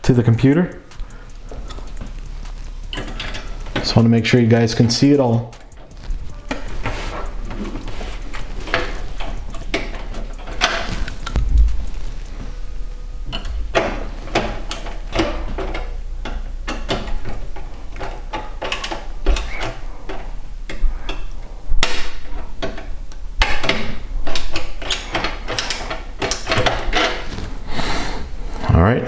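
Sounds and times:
screwdriver turning screws in metal: 0.4s - 11.4s.

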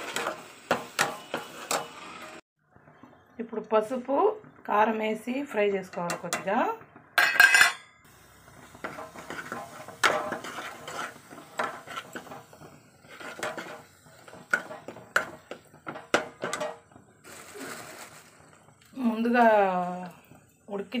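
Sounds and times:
ladle scraping and knocking a pan: 0.0s - 2.4s, 8.6s - 17.0s.

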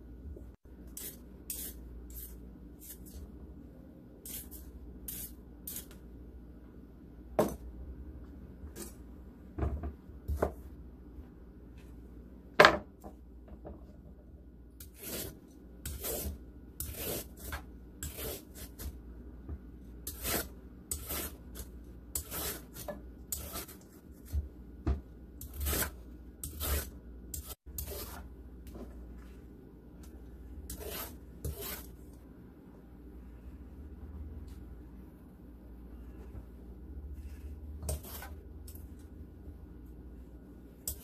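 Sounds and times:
peeler scraping carrot: 0.9s - 3.2s, 4.2s - 6.0s, 14.8s - 18.9s, 20.0s - 24.4s, 25.4s - 28.2s, 30.7s - 31.9s, 37.2s - 38.8s.

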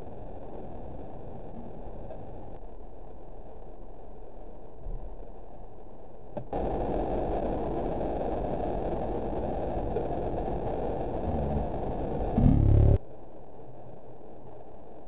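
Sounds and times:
thunderstorm low rush: 6.6s - 13.5s.

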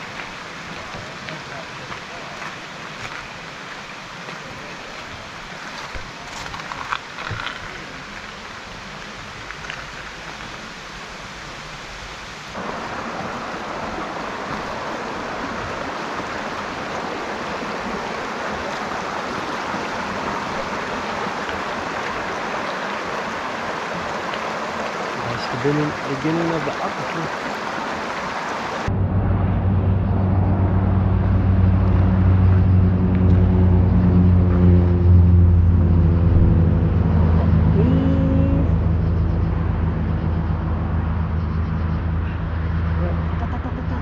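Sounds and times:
creek rushing over stones: 0.0s - 28.9s
running water hissing: 0.0s - 28.9s.

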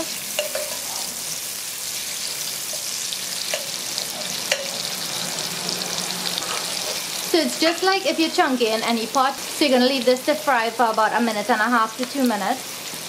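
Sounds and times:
spoon scraping pot: 0.0s - 1.2s
vegetables sizzling in oil: 0.0s - 13.0s.

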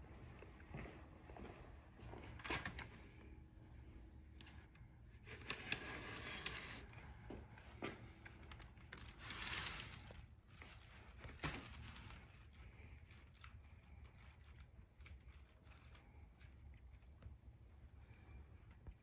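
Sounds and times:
rustling and sliding: 5.2s - 7.2s, 7.8s - 13.3s.

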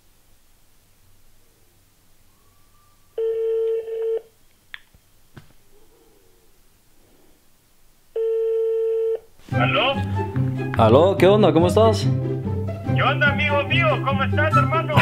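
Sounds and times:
phone ringback tone: 3.2s - 4.3s, 8.2s - 9.3s
faint clicks: 3.7s - 5.9s.

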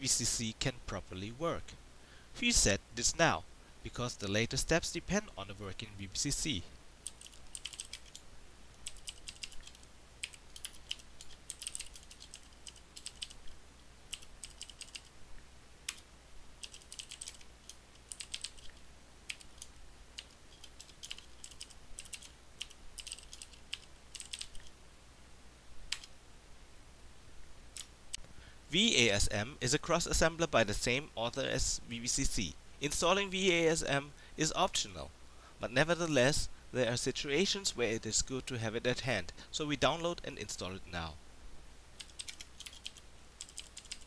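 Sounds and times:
typing on computer keyboard: 7.0s - 8.2s, 8.8s - 13.4s, 14.1s - 15.1s, 16.6s - 24.7s, 42.0s - 44.0s.

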